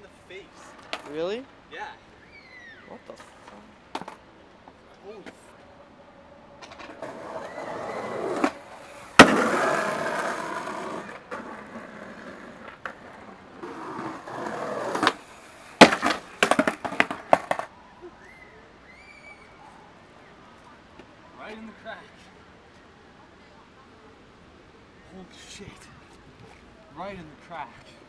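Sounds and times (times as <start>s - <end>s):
skateboard wheels rolling on concrete: 0.0s - 28.0s
skateboard clattering on concrete: 0.7s - 1.4s, 3.2s - 4.2s, 6.6s - 17.7s
skateboard smacking the ground: 0.8s - 1.2s, 3.2s - 4.2s, 6.6s - 17.7s.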